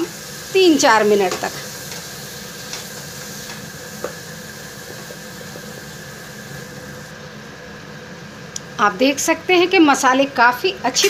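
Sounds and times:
oil sizzling and bubbling: 0.0s - 8.8s.

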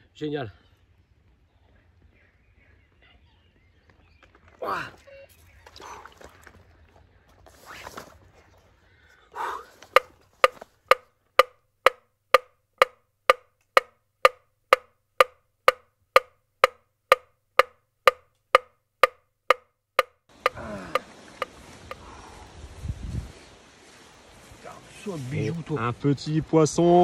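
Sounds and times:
metronome ticking: 9.9s - 22.0s.

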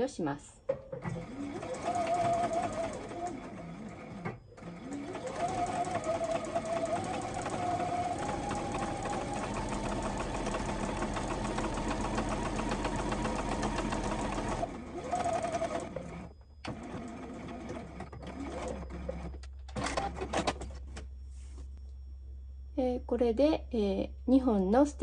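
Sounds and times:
sewing machine stitching: 1.0s - 20.6s.

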